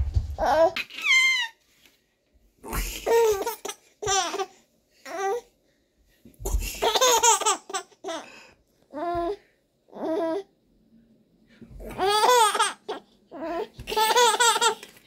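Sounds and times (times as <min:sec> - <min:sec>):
baby laughing: 0:00.4 - 0:01.6, 0:02.7 - 0:04.5, 0:06.5 - 0:08.3, 0:11.9 - 0:14.8.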